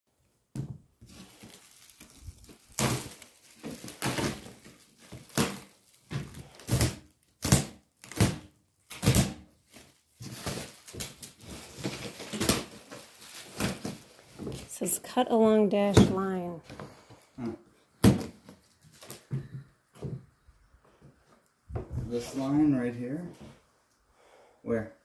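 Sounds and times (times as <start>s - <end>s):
plastic wrap crackling and tearing: 1.0s - 14.7s, 18.0s - 19.3s.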